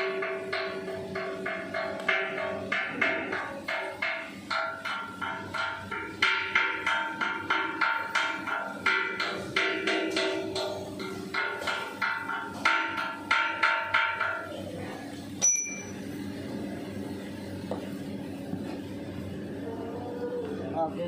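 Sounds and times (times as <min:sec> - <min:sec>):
hammer ringing on steel drum: 0:00.0 - 0:14.6, 0:15.4 - 0:16.1
sharp metal clank: 0:15.4 - 0:16.0.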